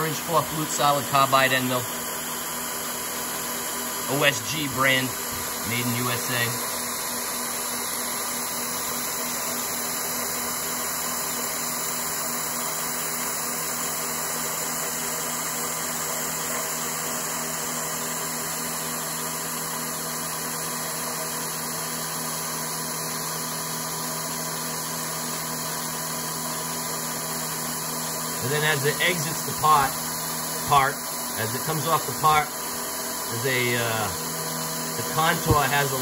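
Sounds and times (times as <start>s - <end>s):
milling machine spindle humming: 0.0s - 36.0s.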